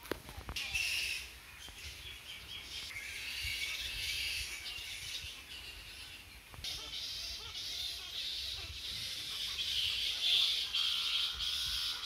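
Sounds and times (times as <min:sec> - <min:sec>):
birds chirping: 0:00.3 - 0:12.0
wind rumble on microphone: 0:02.8 - 0:06.8, 0:08.4 - 0:12.0.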